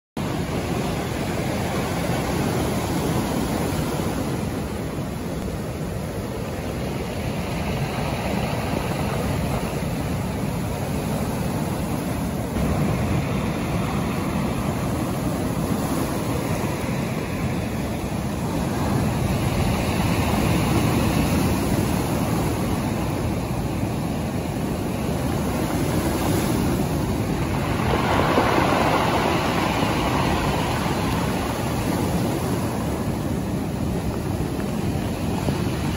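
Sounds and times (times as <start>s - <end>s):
sea surf breaking on pebbles: 7.5s - 35.9s.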